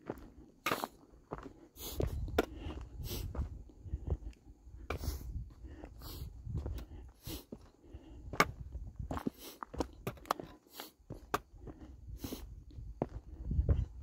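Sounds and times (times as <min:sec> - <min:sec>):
footsteps crunching on rocky trail: 0:00.0 - 0:14.0
wind rumble on microphone: 0:02.0 - 0:07.1, 0:07.9 - 0:09.2, 0:11.6 - 0:14.0.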